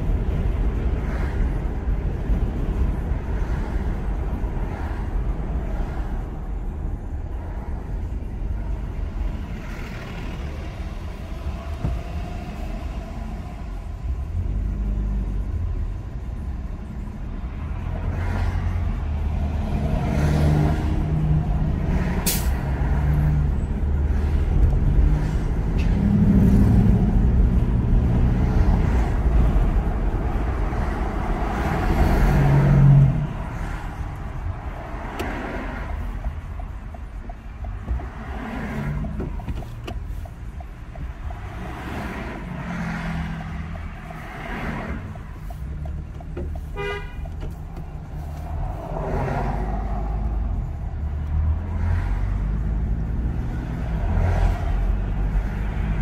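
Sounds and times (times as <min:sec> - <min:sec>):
passing buses and cars: 0:00.0 - 0:56.0
road noise inside a car: 0:00.0 - 0:56.0
bus air brakes hiss: 0:22.2 - 0:22.6.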